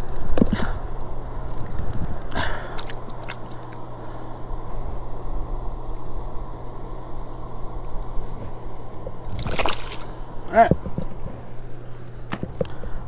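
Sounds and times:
constant low hum: 0.0 - 13.0
clatter of pliers and metal lure: 1.5 - 4.6.

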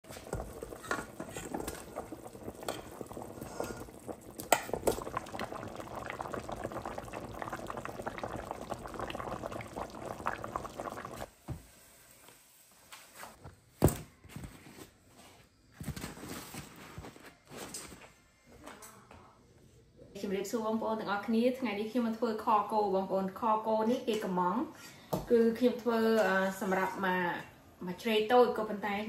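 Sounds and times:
stew bubbling in a pot: 0.0 - 11.3.

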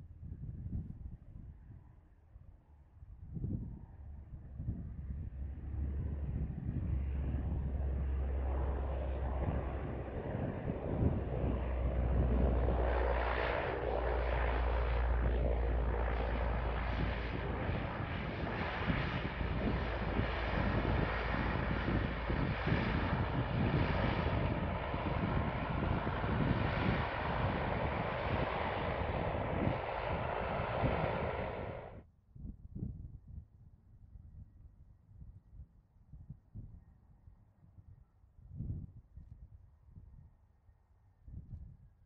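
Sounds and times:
airliner engine and air noise: 0.0 - 32.0.

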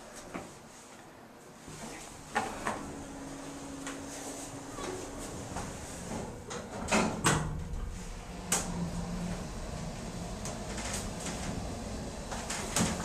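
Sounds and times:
elevator low hum: 1.4 - 13.0
elevator clunk: 2.4 - 13.0
elevator doors thumping shut: 4.8 - 13.0.

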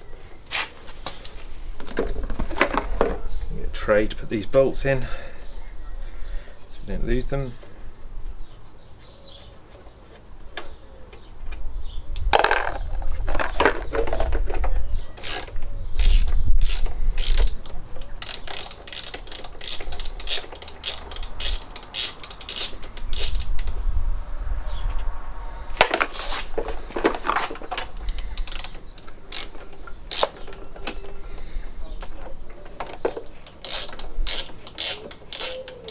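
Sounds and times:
ratchet wrench clicking: 15.2 - 23.8, 28.0 - 30.4, 33.4 - 35.9.

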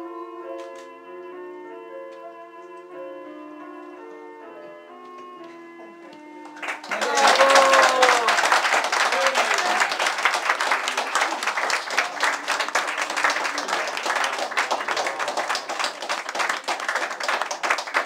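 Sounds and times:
people applauding: 6.4 - 18.0.

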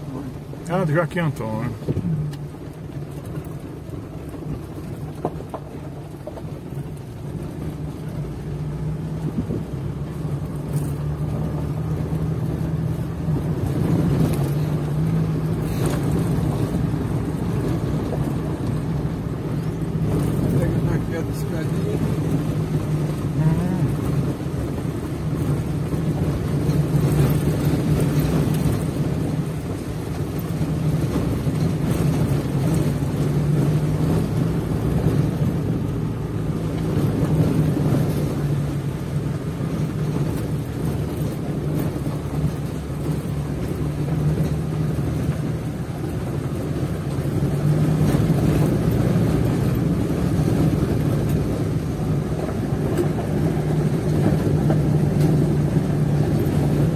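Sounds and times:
road and wind noise: 0.0 - 56.9
vehicle engine cruising: 0.0 - 56.9.

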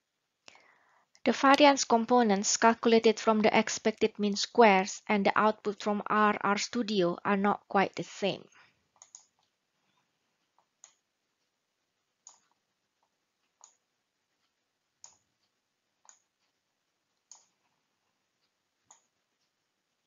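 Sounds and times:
faint computer clicks: 9.0 - 9.5, 12.2 - 12.5, 17.2 - 17.7.

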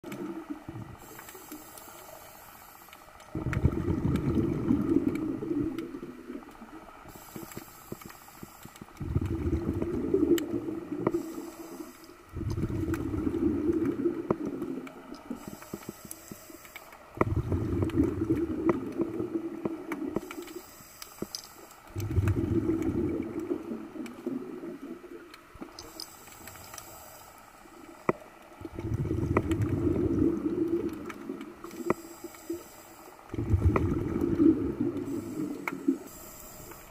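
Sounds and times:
exhaled bubbles rumbling: 0.0 - 1.2, 3.3 - 7.4, 8.8 - 15.6, 17.0 - 20.5, 21.9 - 26.0, 27.8 - 32.0, 33.2 - 36.2
faint clicks: 0.1 - 36.9
regulator inhale hiss: 0.9 - 3.8, 7.1 - 9.3, 10.9 - 13.2, 15.2 - 18.0, 20.2 - 22.0, 25.8 - 28.2, 31.7 - 33.6, 34.4 - 36.9.

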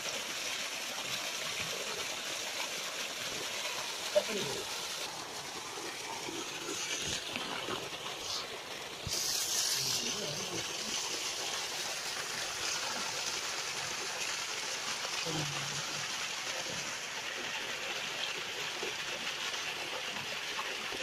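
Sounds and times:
water gushing from pipe: 0.0 - 21.0
loud hiss: 9.0 - 10.6.

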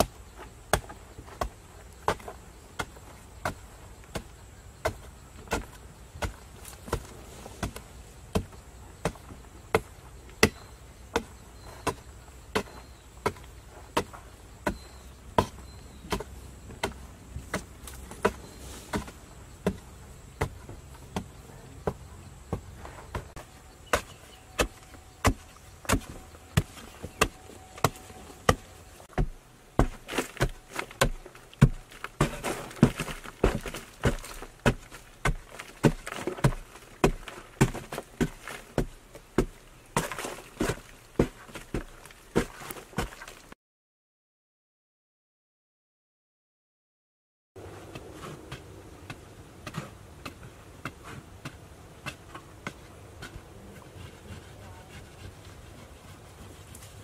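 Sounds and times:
digging tool striking hard earth: 0.0 - 43.4
loose soil scraping and falling: 0.0 - 43.5, 47.6 - 57.0.

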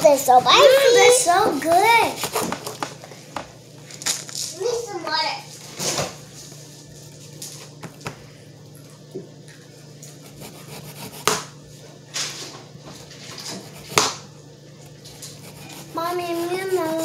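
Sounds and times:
steady low hum: 0.0 - 17.0
rubbing or scraping noises: 15.1 - 17.0.

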